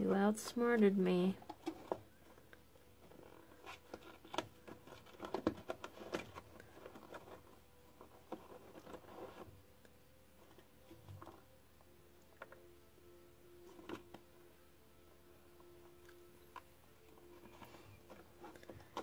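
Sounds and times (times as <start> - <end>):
kitten rustling packets: 1.2 - 9.6.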